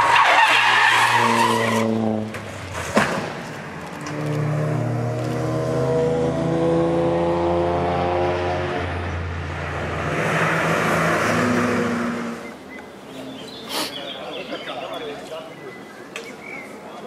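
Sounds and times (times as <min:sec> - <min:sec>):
race car engines running: 0:01.0 - 0:13.5
race car passing by: 0:04.0 - 0:13.5.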